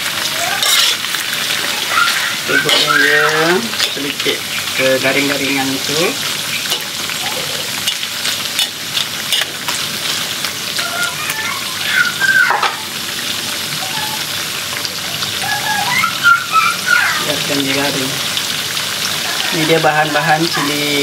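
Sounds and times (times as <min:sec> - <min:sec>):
meat sizzling in a wok: 0:00.0 - 0:21.0
metal spatula scraping a wok: 0:00.6 - 0:01.3, 0:02.6 - 0:03.0, 0:07.8 - 0:09.7.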